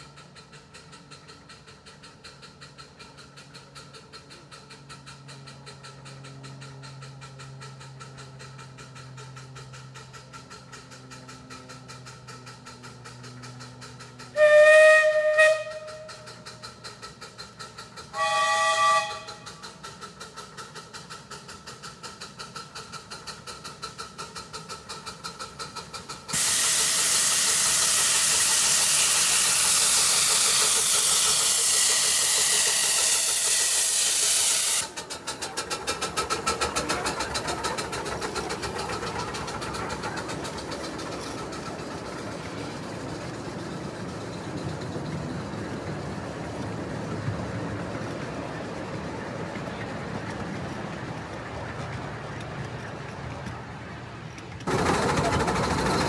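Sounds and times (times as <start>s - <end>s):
steam locomotive exhaust beat: 0.0s - 56.0s
steam whistle: 14.3s - 16.3s, 18.1s - 19.5s
loud steam hiss: 22.9s - 43.6s.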